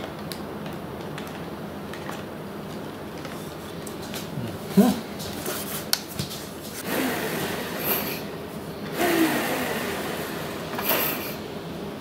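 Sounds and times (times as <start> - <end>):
rubbing and shuffling: 3.2 - 6.8.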